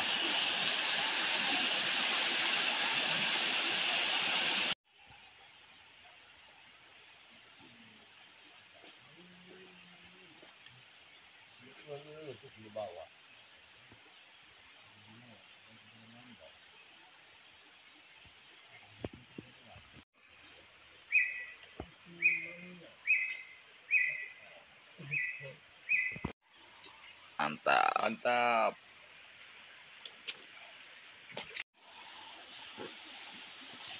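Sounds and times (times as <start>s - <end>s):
forest insects droning: 0.0s - 33.9s
short high calls: 25.0s - 26.3s.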